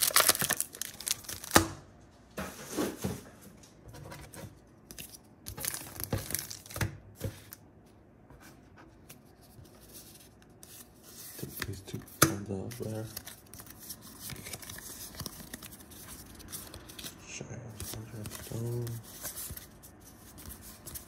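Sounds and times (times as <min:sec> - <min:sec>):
cards rustling: 0:00.0 - 0:01.6, 0:04.8 - 0:07.6, 0:08.9 - 0:21.0
foil pack tearing and crinkling: 0:00.0 - 0:01.7.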